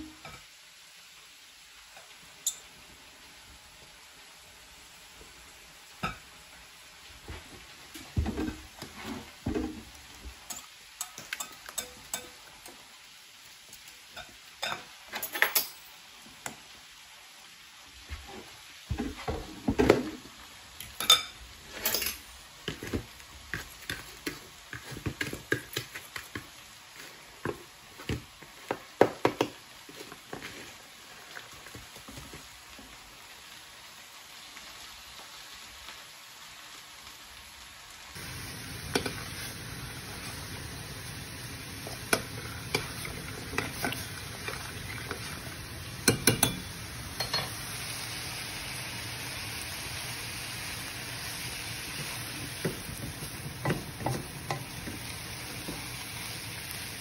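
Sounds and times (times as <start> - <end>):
metal fork clinking against glass: 21.0 - 21.3, 46.0 - 47.5
taps and scrapes in glass bowls: 46.0 - 47.5.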